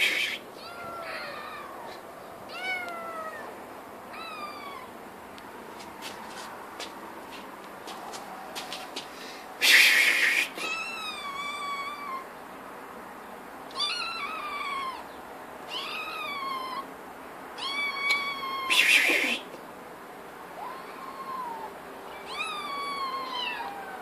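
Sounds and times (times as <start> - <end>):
kitten hissing: 0.0 - 2.0, 9.6 - 11.4, 17.7 - 19.6
kitten meowing: 0.0 - 3.5, 4.1 - 4.9, 10.6 - 12.3, 13.7 - 15.0, 15.7 - 16.8, 17.6 - 19.4, 20.6 - 24.0.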